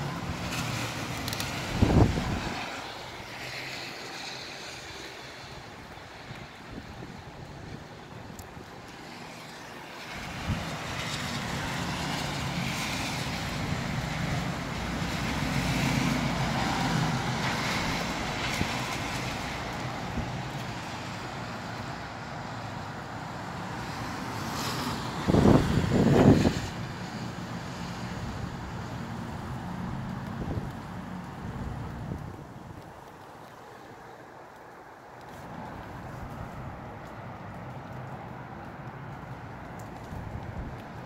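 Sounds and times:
wind and rain: 0.0 - 41.0
wind blasts on microphone: 0.1 - 3.4, 5.4 - 9.0, 10.2 - 21.5, 23.8 - 27.1, 30.2 - 33.4.

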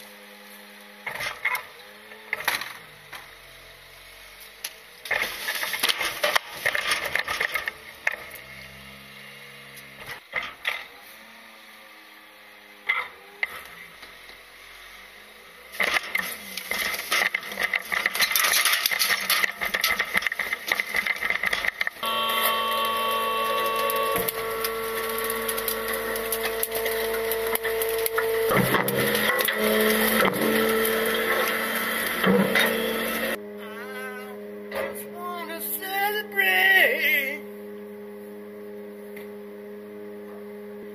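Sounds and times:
hydraulics whining: 0.0 - 40.9
lift arm and trash can clattering: 15.8 - 33.4.

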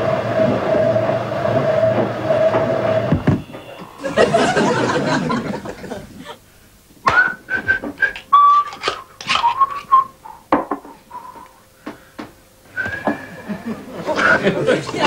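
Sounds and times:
person whistling a tune: 7.0 - 10.2, 12.7 - 13.4.

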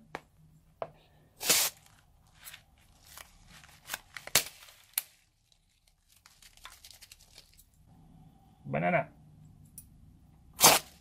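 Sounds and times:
scissors snipping balloon: 10.6 - 11.0.

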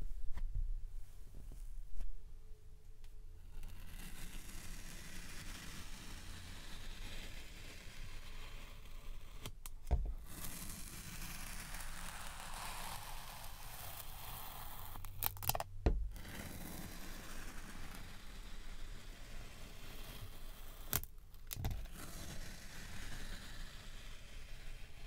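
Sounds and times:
click and thump: 9.8 - 10.2, 15.8 - 16.1.

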